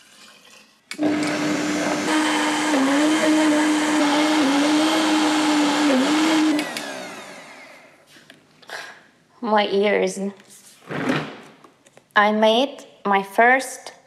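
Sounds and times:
blender motor running: 1.0s - 7.9s.

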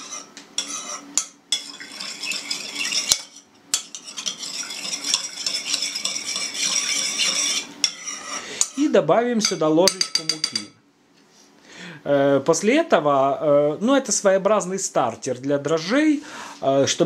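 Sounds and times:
metal utensil scraping a bowl: 0.0s - 9.0s.

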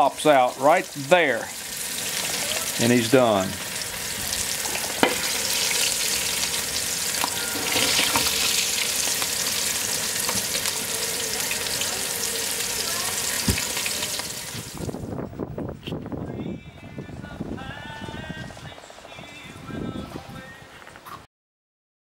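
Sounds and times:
food sizzling in hot oil: 0.0s - 15.0s
oil popping: 0.8s - 15.0s.

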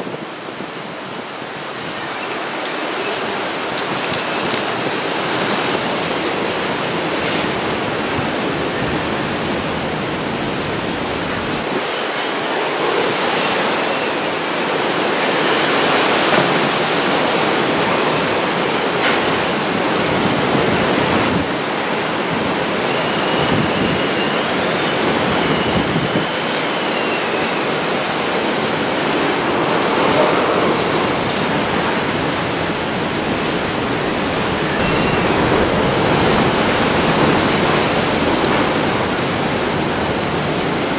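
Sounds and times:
heavy rain: 0.0s - 40.9s
storm wind: 0.0s - 40.9s
faint wavering whistle: 22.8s - 28.6s.

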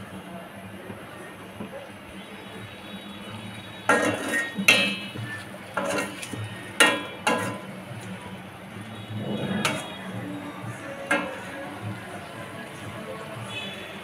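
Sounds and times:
spatula scraping a metal wok: 3.9s - 7.8s, 9.2s - 10.1s, 11.0s - 11.8s.

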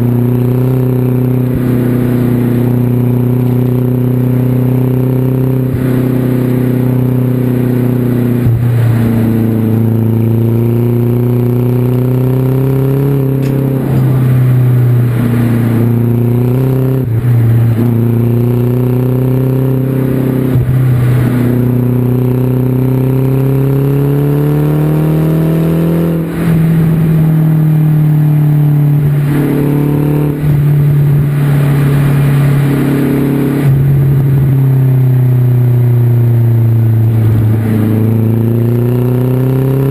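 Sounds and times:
car engine revving while driving: 0.0s - 39.9s.

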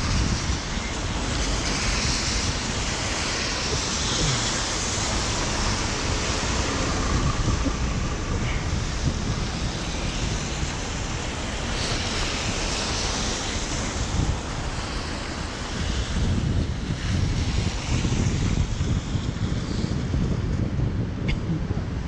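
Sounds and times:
rain hissing: 0.0s - 16.5s
tyres on wet road: 0.0s - 22.0s
wind buffeting microphone: 0.0s - 22.0s.

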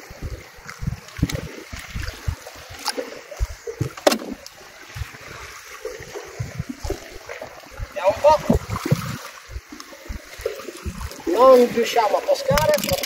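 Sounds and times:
low thumps: 0.0s - 11.4s
sea lapping against boat hull: 0.0s - 13.0s.

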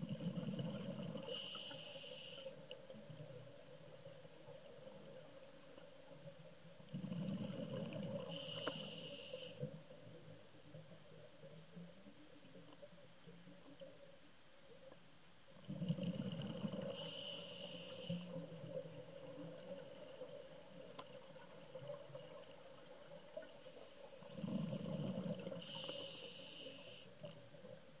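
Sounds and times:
faint steady hum: 0.0s - 28.0s
diver breathing through regulator: 1.2s - 2.6s, 8.2s - 9.7s, 16.8s - 18.4s, 23.6s - 27.2s
bubbly exhale rumble: 15.7s - 17.1s, 24.3s - 25.8s.

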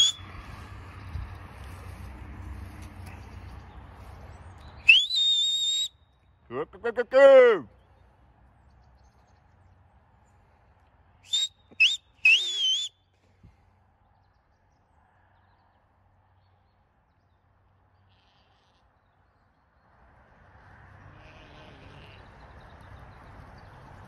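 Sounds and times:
high whistles: 0.0s - 0.2s, 4.8s - 6.0s, 11.3s - 13.0s.

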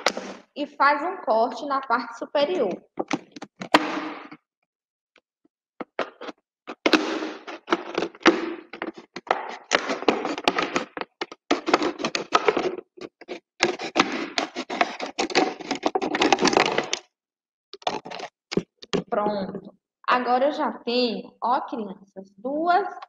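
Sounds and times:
plastic bottle crinkling: 5.8s - 17.0s, 17.8s - 19.7s
scissors cutting plastic: 6.0s - 17.0s, 17.8s - 19.1s.

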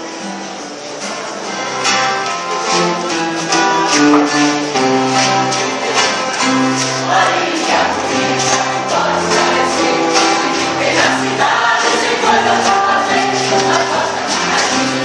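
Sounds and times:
voices singing together: 0.8s - 15.0s
held instrumental notes: 2.2s - 7.6s
light steady beat: 3.9s - 4.7s
bass line: 3.9s - 5.0s.

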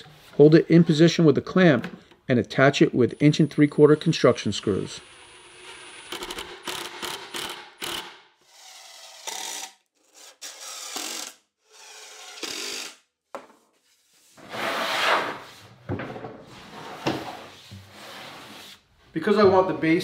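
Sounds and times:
impact driver driving screws: 5.5s - 9.8s.

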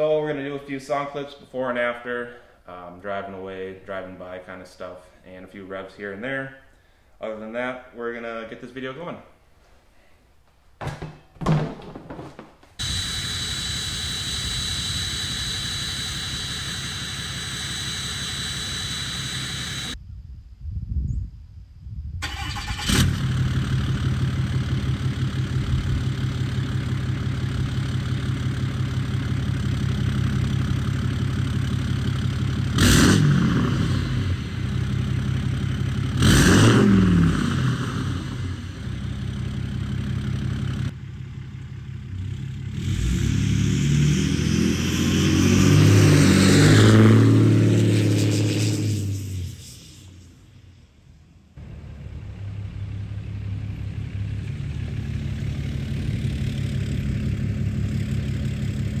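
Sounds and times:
diesel engine revving: 12.8s - 20.0s, 22.2s - 50.4s, 51.6s - 59.0s
turbo whistle: 12.8s - 20.0s
diesel engine idling: 23.5s - 32.8s, 34.2s - 36.2s, 37.4s - 42.7s, 51.6s - 59.0s.

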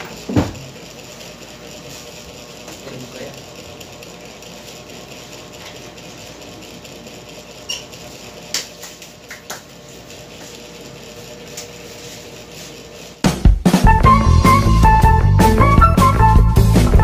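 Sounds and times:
steady room hum: 0.0s - 13.4s.

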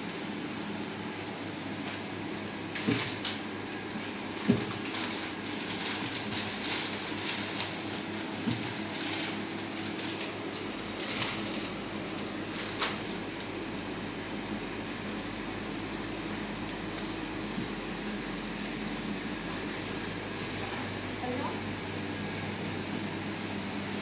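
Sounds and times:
steady machine hum: 0.0s - 24.0s
plastic bag crinkling: 4.7s - 8.1s.

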